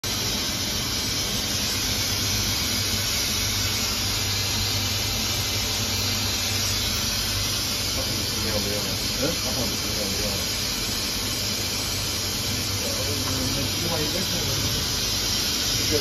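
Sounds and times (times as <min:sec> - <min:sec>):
machine hiss: 0:00.0 - 0:16.0.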